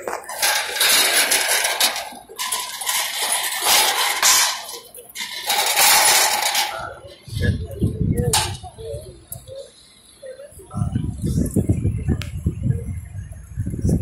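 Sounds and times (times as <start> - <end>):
metal barricade clattering: 0.0 - 7.0, 8.3 - 8.6.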